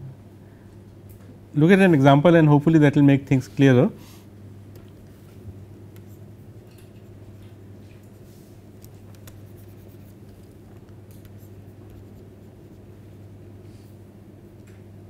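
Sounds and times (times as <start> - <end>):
low electrical hum: 0.0 - 15.0
stylus scratching on tablet: 5.9 - 6.3, 8.8 - 13.1.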